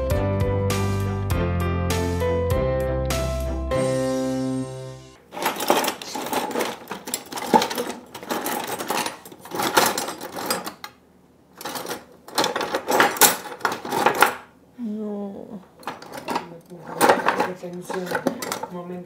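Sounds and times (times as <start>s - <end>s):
metal kitchenware clattering: 5.3s - 14.5s, 15.8s - 19.0s.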